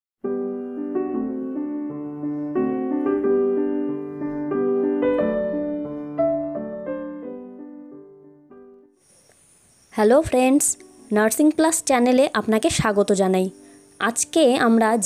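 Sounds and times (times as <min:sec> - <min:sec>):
gentle piano melody: 0:00.2 - 0:09.0.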